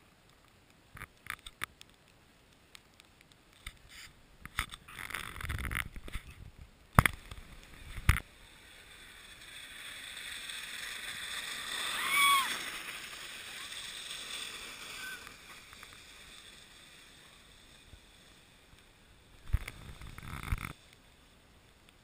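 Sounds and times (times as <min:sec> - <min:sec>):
scrapes and crunches on icy snow: 0:07.1 - 0:21.2
hiss: 0:07.2 - 0:21.5.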